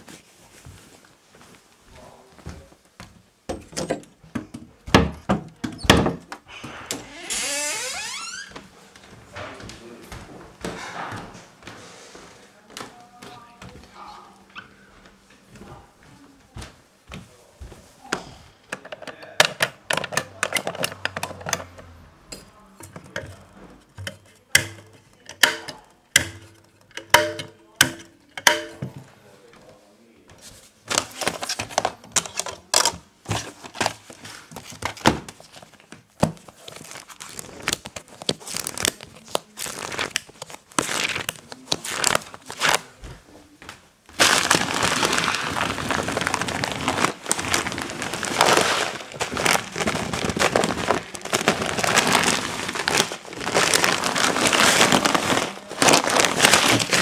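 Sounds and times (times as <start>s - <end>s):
plastic sheeting crinkling: 0.0s - 2.0s, 33.4s - 43.0s, 44.1s - 57.0s.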